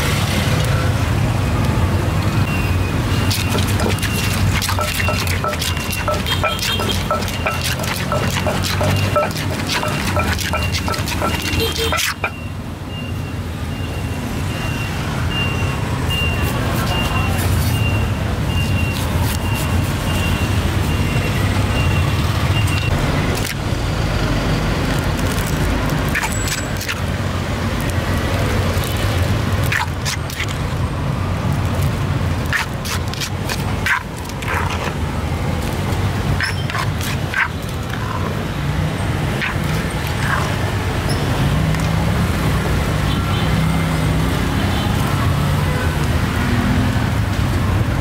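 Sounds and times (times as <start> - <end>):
traffic engine rumble: 0.0 - 48.0.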